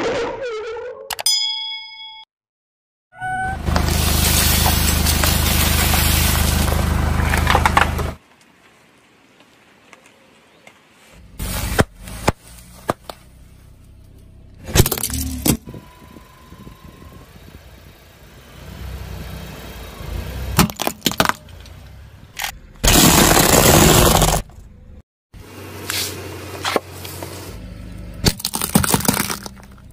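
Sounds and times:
car tyre crushing objects: 3.6 - 8.2, 11.3 - 15.7, 20.5 - 24.6, 28.2 - 29.9.

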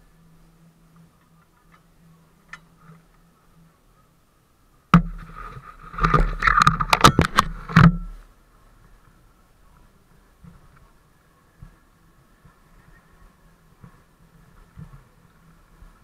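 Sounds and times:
clicks and knocks on camera housing: 6.0 - 8.1.

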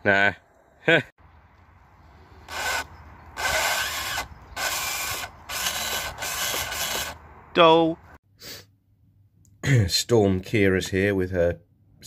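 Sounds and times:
rc car gearbox whining rasp: 2.5 - 7.2.

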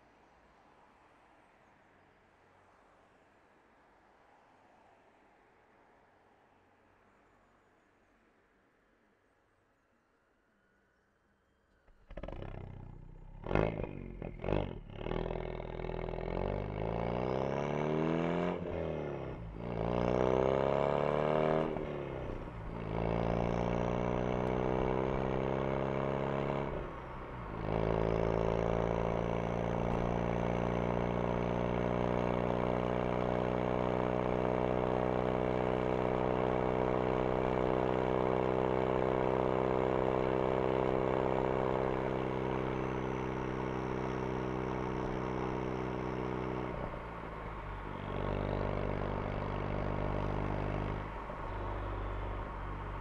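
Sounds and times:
car engine revving: 11.9 - 53.0
car accelerating through gears: 12.1 - 53.0.

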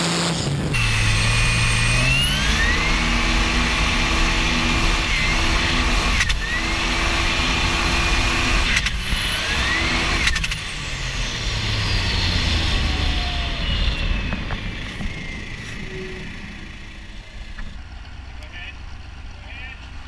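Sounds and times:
boat engine running: 0.0 - 20.0
wind: 0.0 - 20.0
high whine falling in pitch: 10.7 - 17.8.

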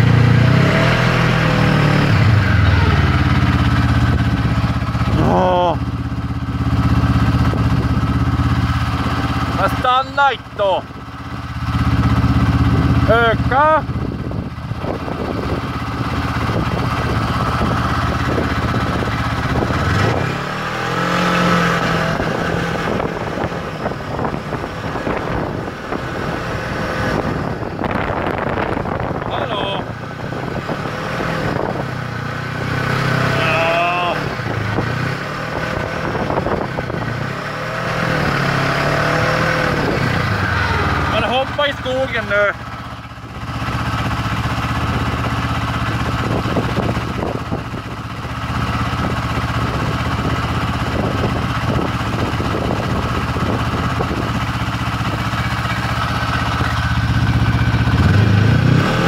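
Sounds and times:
snowmobile engine running: 0.0 - 10.8, 11.6 - 59.0.

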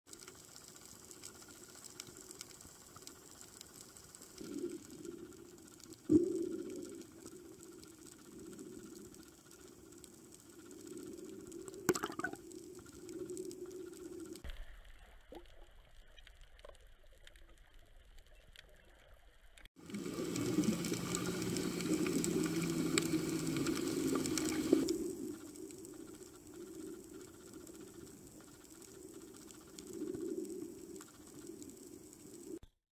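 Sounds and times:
muffled underwater water noise: 0.1 - 32.6
rushing water: 19.8 - 24.8.

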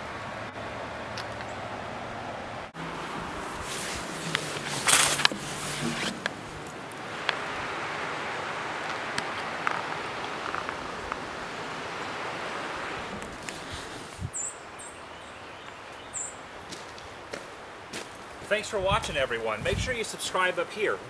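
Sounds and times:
river rushing: 0.0 - 18.8
small bird chirping: 14.2 - 16.4.

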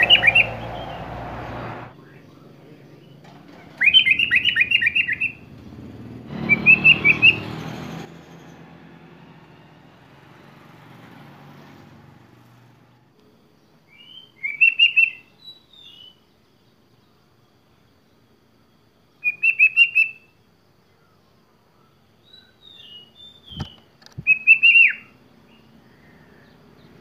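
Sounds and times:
bird chattering song: 0.0 - 1.0, 3.8 - 5.4, 14.0 - 16.2, 22.3 - 27.0
rush of background noise: 0.0 - 3.0.

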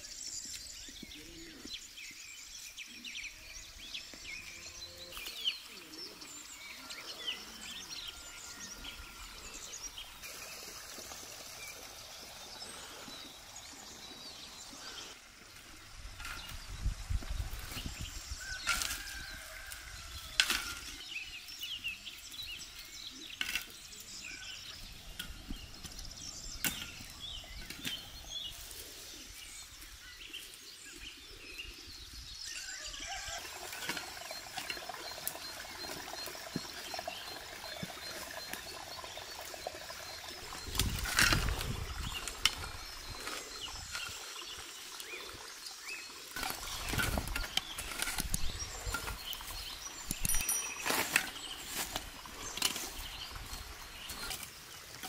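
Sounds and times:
small birds chirping: 0.0 - 55.0
shovel scraping into soil: 46.3 - 55.0.

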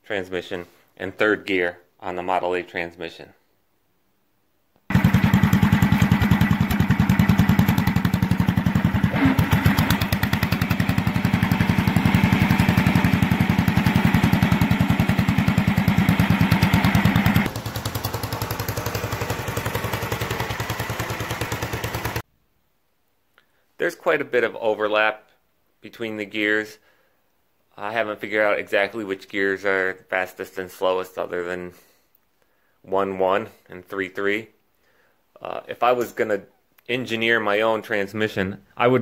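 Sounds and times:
garden tractor engine running: 4.9 - 22.2.

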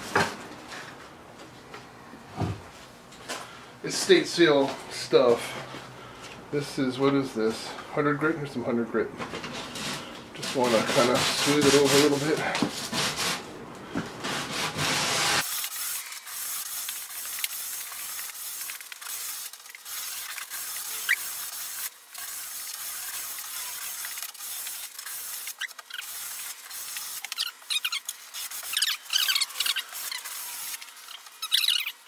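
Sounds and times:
sandpaper sanding wood: 10.4 - 13.4, 14.2 - 32.0.

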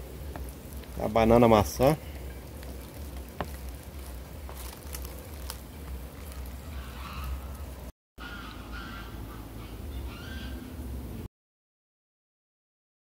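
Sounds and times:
faint bird calls: 6.2 - 10.8.

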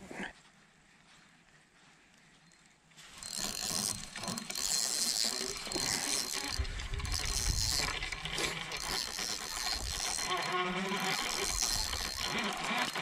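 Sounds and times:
fishing reel whirring and clicking: 3.1 - 13.0.

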